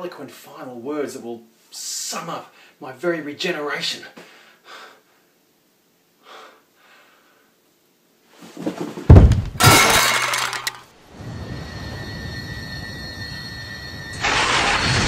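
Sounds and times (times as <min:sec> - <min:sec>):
loud smashing crash: 0:09.1 - 0:10.8, 0:14.2 - 0:15.0.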